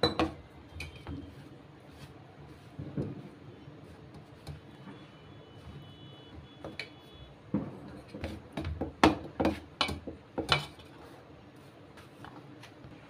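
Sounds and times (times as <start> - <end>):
hand rubbing dough: 0.9 - 4.9, 10.8 - 13.0.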